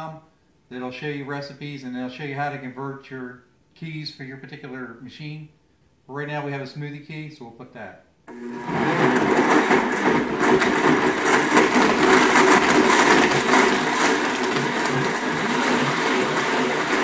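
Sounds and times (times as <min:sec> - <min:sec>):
blender crushing ice: 0:08.3 - 0:17.0.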